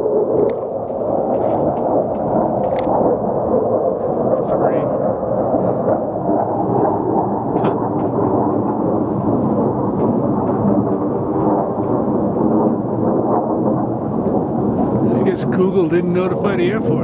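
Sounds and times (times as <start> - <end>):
fighter jets roaring overhead: 0.0 - 17.0.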